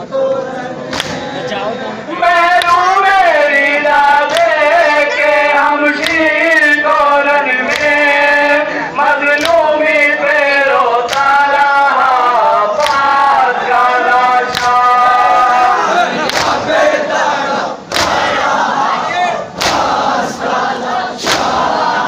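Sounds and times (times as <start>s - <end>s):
men chanting a lament: 0.0s - 22.0s
unison chest beating strikes: 19.6s - 20.1s, 21.2s - 21.7s.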